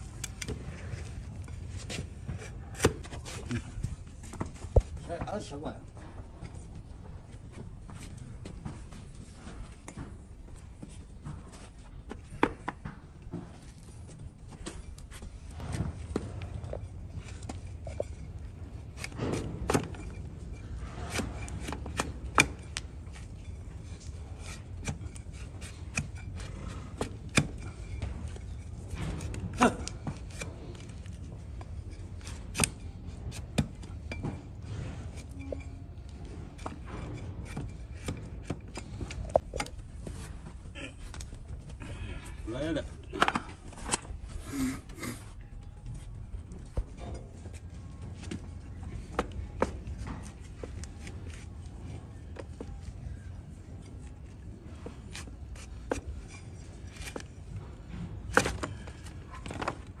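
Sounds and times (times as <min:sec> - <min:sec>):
blade scraping hoof: 0:13.6 - 0:40.6.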